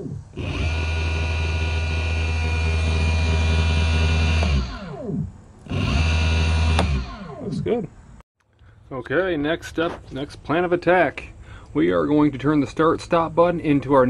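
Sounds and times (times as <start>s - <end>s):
electric motor whine and hum: 0.0s - 7.8s.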